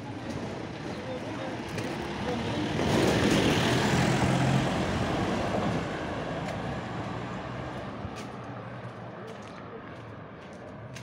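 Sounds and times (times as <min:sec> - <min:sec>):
jeep driving past: 0:02.1 - 0:08.1.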